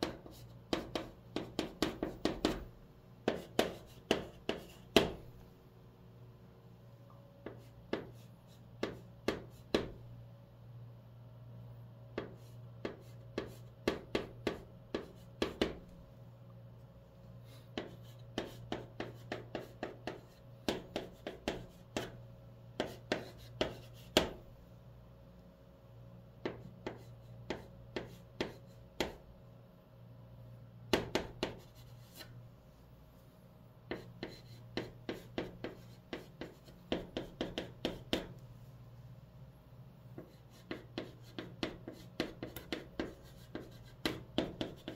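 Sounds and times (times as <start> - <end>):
chalk tapping and scraping on board: 0.0 - 5.2, 7.4 - 10.0, 12.2 - 15.8, 17.5 - 22.2, 22.8 - 24.4, 26.4 - 29.2, 30.9 - 32.4, 33.9 - 38.4, 40.1 - 44.9.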